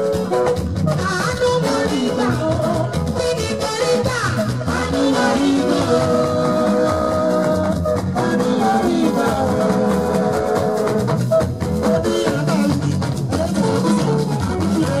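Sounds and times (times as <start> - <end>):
live band music: 0.0 - 15.0
woman singing into a microphone: 0.9 - 10.8.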